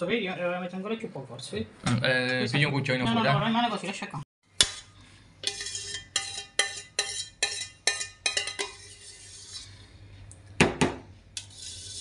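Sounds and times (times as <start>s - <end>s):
spoon knocking and scraping: 4.6s - 9.8s.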